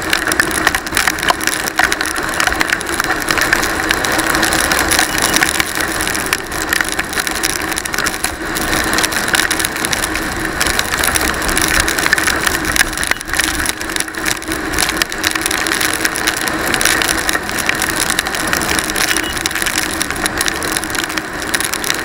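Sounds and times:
raindrops striking camera: 0.0s - 22.0s.

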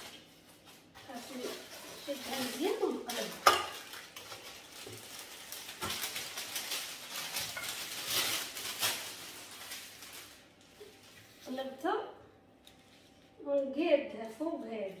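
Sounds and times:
baking paper crinkling: 0.0s - 12.0s, 12.6s - 13.4s, 14.0s - 15.0s.

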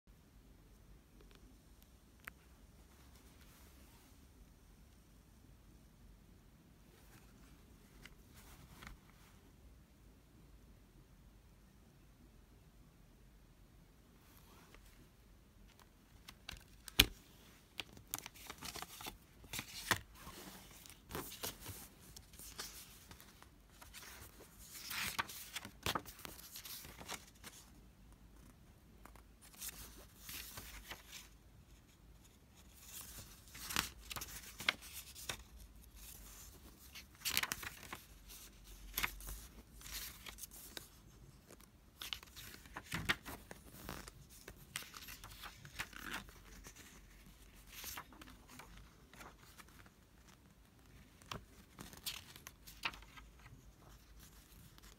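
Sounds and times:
paper rustling: 15.7s - 27.8s, 29.4s - 54.9s.

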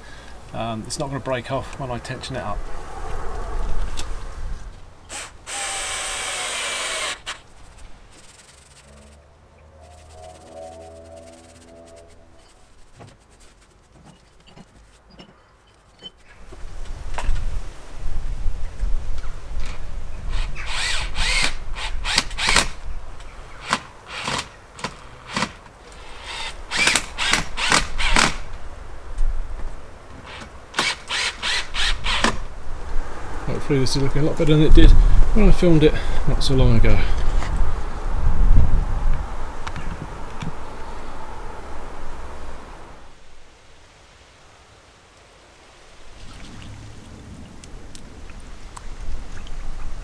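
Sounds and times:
power drill running: 5.1s - 7.4s, 20.4s - 22.7s.

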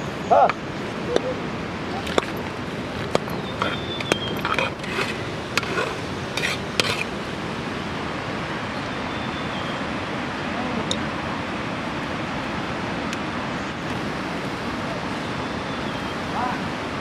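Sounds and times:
steady hiss: 0.0s - 17.0s
metal spoon scraping steel plate: 3.0s - 7.1s.

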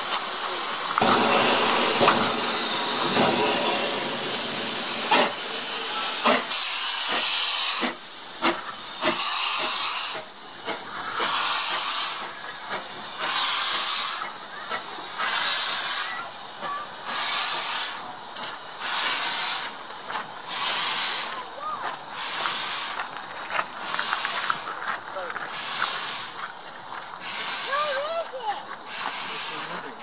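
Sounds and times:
steam locomotive hissing: 0.0s - 30.0s.

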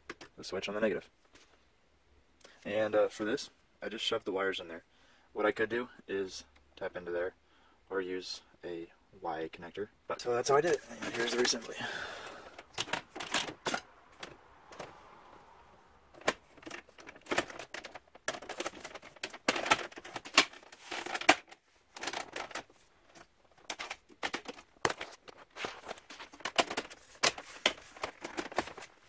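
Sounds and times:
plastic trim clicking and rattling: 16.2s - 28.9s.

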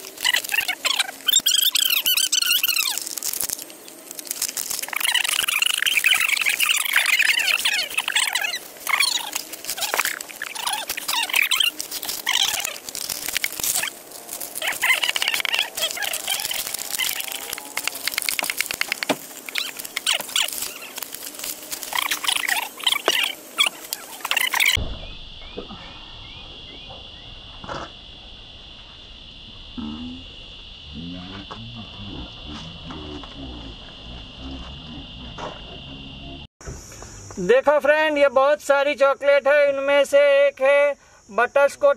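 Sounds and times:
wrappers crinkling and rustling: 0.0s - 24.8s
high-pitched hum: 0.0s - 36.5s.

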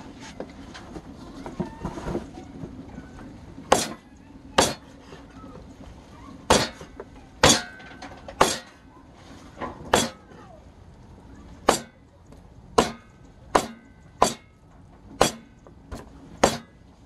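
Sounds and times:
knife chopping on wooden board: 3.7s - 4.0s, 13.6s - 14.4s, 15.2s - 15.4s, 16.4s - 16.7s.

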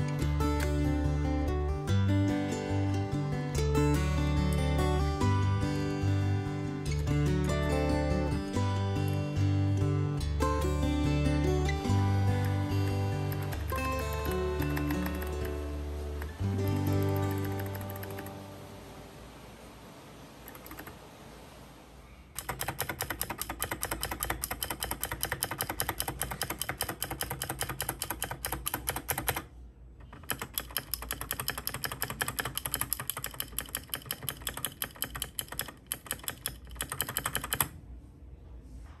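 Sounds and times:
mechanical keyboard key clacks: 22.4s - 29.5s, 30.1s - 37.7s.

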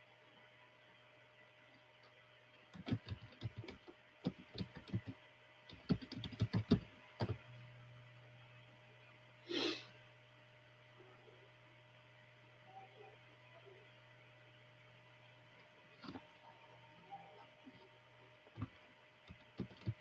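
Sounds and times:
faint steady hum: 0.0s - 20.0s
short breathy hiss: 9.5s - 9.9s.

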